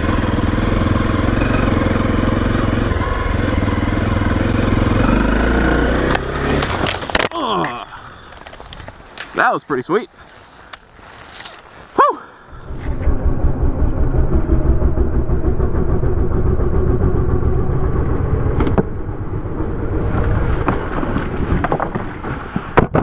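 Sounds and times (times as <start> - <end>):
motorcycle engine droning: 0.0 - 9.0, 11.5 - 22.0
rising and falling tone: 12.5 - 21.5.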